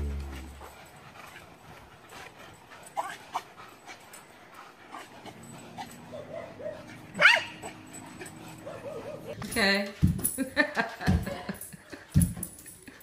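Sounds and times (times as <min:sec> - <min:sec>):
small dog whining yelps: 0:06.1 - 0:07.7.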